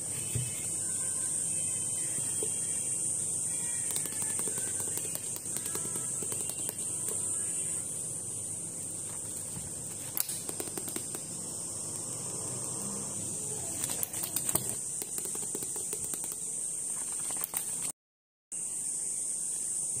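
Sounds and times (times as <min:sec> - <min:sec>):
steady hiss: 0:00.0 - 0:17.9, 0:18.5 - 0:20.0
book covers rustling and tapping: 0:17.0 - 0:17.9
pages riffling: 0:17.0 - 0:17.9.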